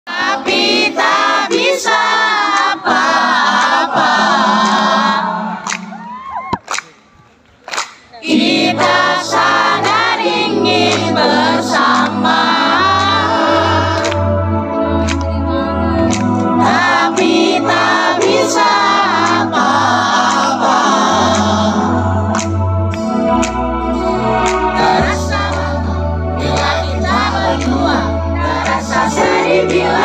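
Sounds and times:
crowd singing along: 0:00.1 - 0:06.2, 0:08.2 - 0:30.0
pulsing bass line: 0:08.6 - 0:30.0
live pop band playing: 0:08.8 - 0:30.0.

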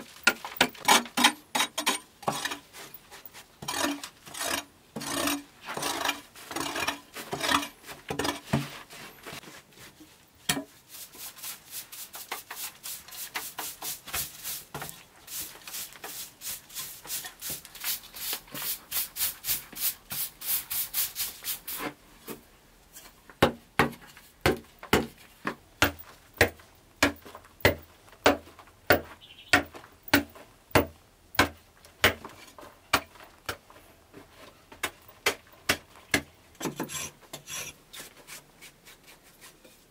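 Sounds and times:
hoe scraping earth: 0:00.8 - 0:09.4.

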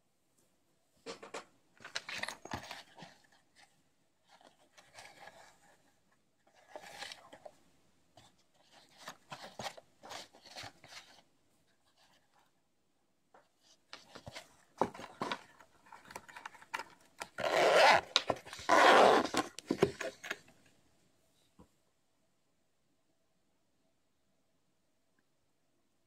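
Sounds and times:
zipper being pulled: 0:17.4 - 0:19.4.

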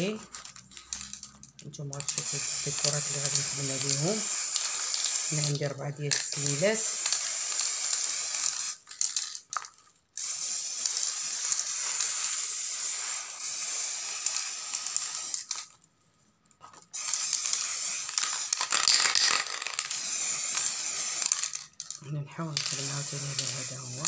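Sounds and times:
spray can hissing: 0:02.0 - 0:08.8, 0:10.2 - 0:15.6, 0:16.9 - 0:21.6, 0:22.6 - 0:24.0.

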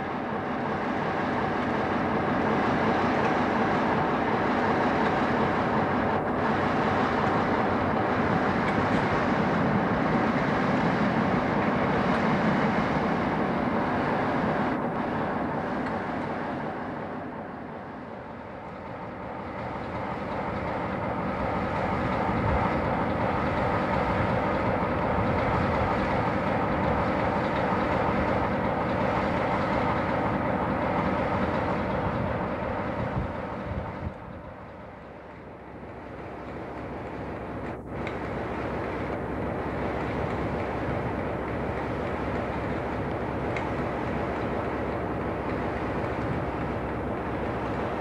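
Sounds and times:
diesel locomotive engine running: 0:00.0 - 0:48.0.

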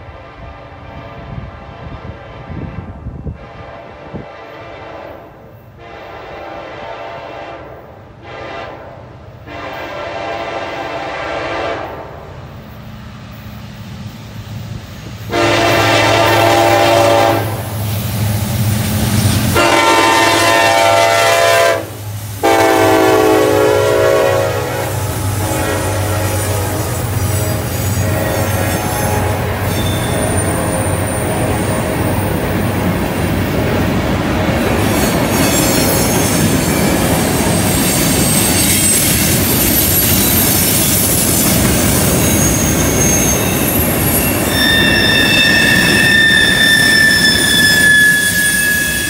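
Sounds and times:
locomotive horn blasts: 0:01.0 - 0:12.2, 0:15.3 - 0:17.6, 0:19.5 - 0:31.9, 0:44.5 - 0:49.0
freight cars rolling on rails: 0:12.3 - 0:49.0.

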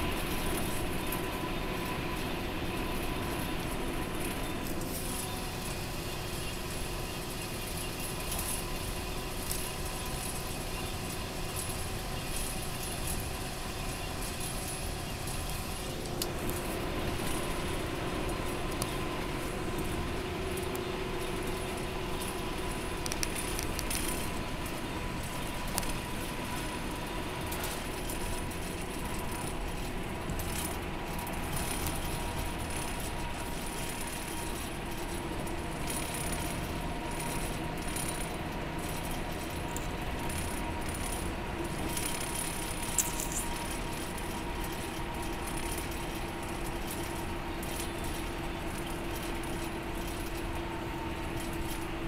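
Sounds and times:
coach engine drone: 0:00.0 - 0:52.0
jangling rattles: 0:27.5 - 0:50.6.

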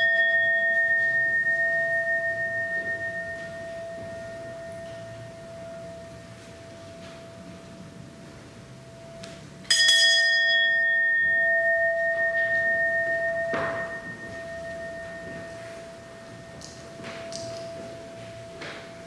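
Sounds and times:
hand bell ringing: 0:00.0 - 0:06.0, 0:09.7 - 0:17.9
steady hum-like tone: 0:00.0 - 0:19.0.

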